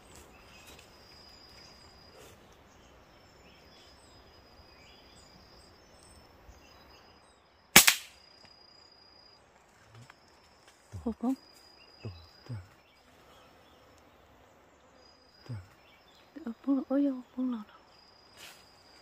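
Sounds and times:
gunshot: 7.8s - 8.2s.

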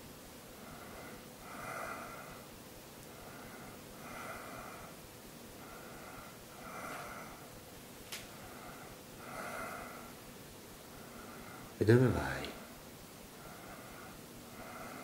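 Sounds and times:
man breathing: 0.5s - 7.6s, 8.3s - 11.8s, 13.2s - 15.0s.

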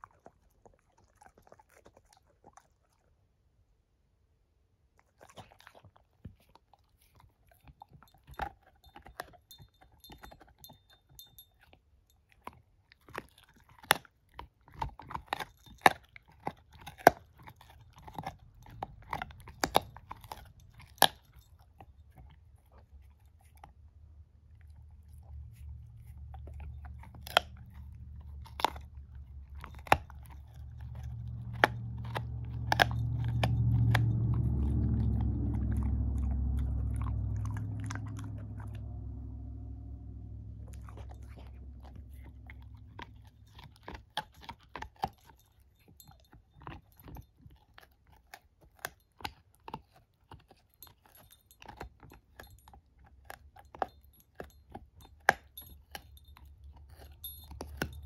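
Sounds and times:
puppy chewing a stick: 0.0s - 3.9s, 4.8s - 58.0s
low rumble: 18.4s - 21.4s, 24.1s - 44.6s.

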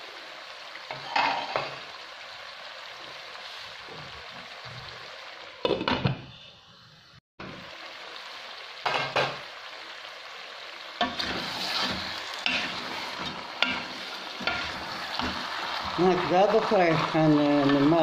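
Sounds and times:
vegetables sizzling in oil: 0.0s - 18.0s
wooden spatula scraping and knocking: 11.0s - 18.0s.

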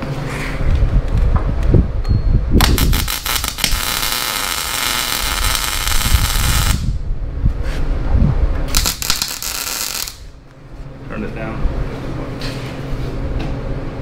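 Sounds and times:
welder arc crackling: 2.6s - 7.0s, 8.7s - 10.4s.

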